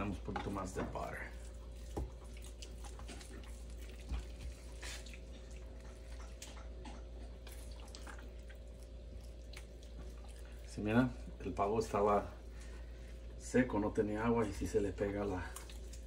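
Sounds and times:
steady low hum: 0:00.0 - 0:16.0
wet squishes of hands rubbing: 0:00.0 - 0:16.0.

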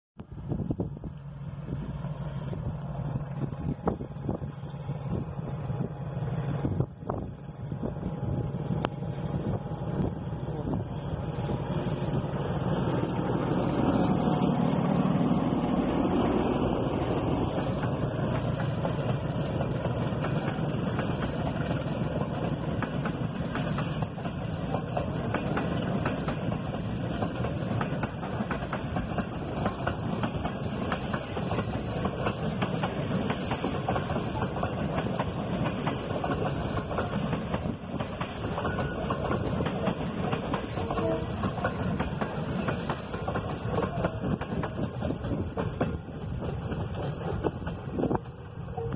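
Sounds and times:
train rumbling: 0:00.2 - 0:48.9
train wheels clacking over rail joints: 0:15.8 - 0:48.6.

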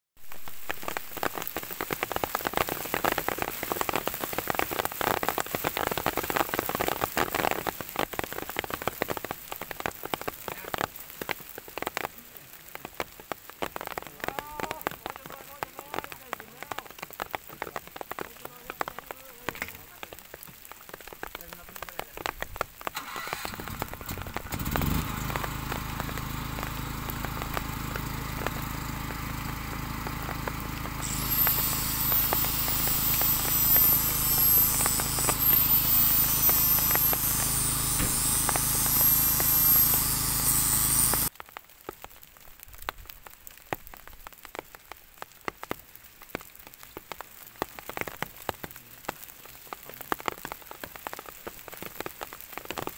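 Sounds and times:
rain pattering: 0:00.2 - 0:52.9
diesel truck engine revving: 0:23.2 - 0:41.3
high whine: 0:25.5 - 0:41.3.

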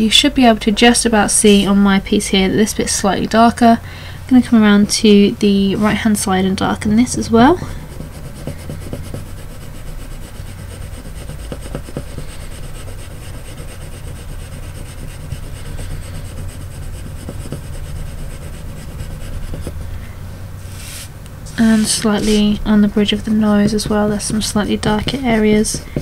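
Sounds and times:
steady low hum: 0:00.0 - 0:26.0
pencil scratching on paper: 0:07.1 - 0:19.9, 0:21.6 - 0:26.0.

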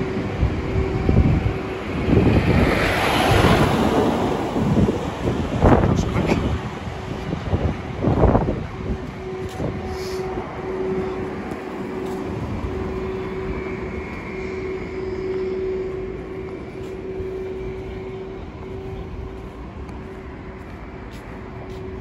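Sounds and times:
road traffic noise: 0:00.0 - 0:22.0
steady machine hum: 0:00.0 - 0:22.0.

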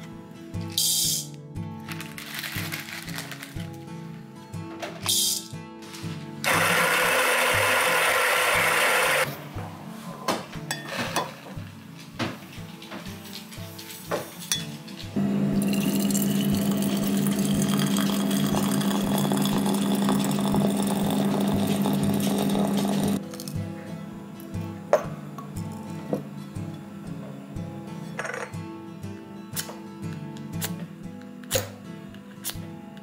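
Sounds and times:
electric coffee grinder running: 0:06.4 - 0:09.3, 0:15.2 - 0:23.2.

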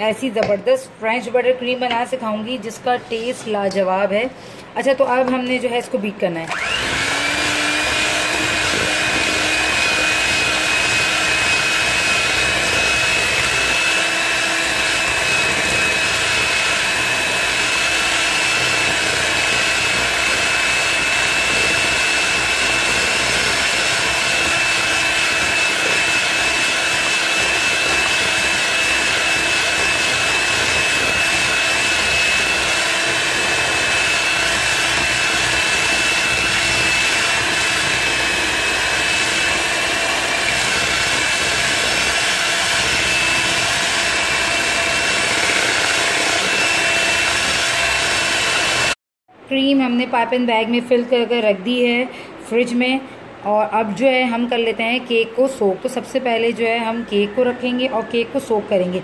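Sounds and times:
beaters churning in steel bowl: 0:06.5 - 0:49.0
electric hand mixer whining: 0:06.5 - 0:49.0.

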